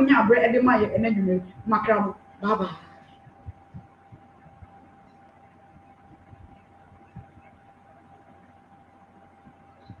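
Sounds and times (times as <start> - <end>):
faint high hum: 0.0 - 10.0
low electrical hum: 0.0 - 10.0
soft low thumps: 0.1 - 8.3.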